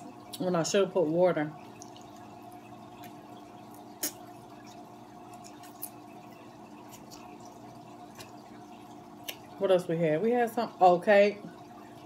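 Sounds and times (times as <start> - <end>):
steady low hum: 0.0 - 12.0
chewing: 3.0 - 8.5.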